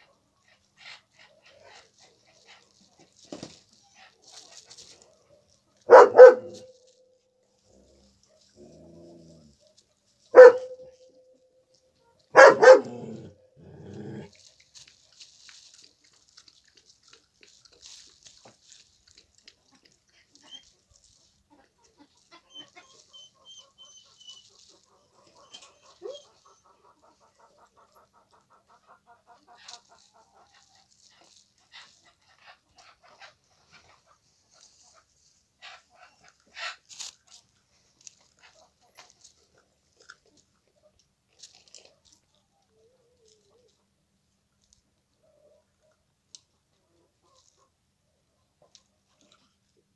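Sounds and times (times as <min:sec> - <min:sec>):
faint ticks and rustles: 0:00.0 - 0:47.8, 0:48.4 - 0:49.9
dog barking: 0:05.9 - 0:06.9, 0:10.3 - 0:11.1, 0:12.3 - 0:13.4.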